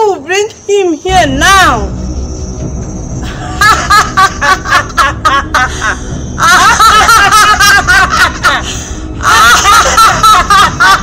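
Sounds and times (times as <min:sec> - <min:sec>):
women laughing loudly: 0:03.2 - 0:11.0.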